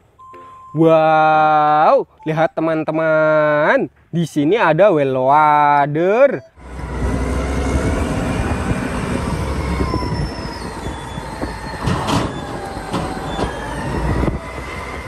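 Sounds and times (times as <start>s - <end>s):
heavy engine rumble: 6.6s - 15.0s.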